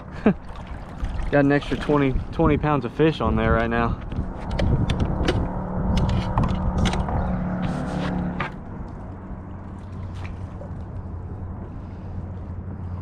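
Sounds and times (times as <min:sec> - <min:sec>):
fish thrashing in water: 0:00.0 - 0:02.4, 0:09.4 - 0:11.6
water noise: 0:00.0 - 0:13.0.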